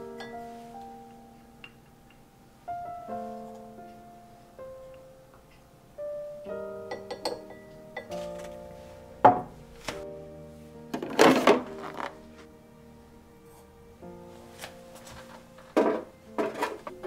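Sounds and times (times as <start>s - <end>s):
soft piano music: 0.0s - 17.0s.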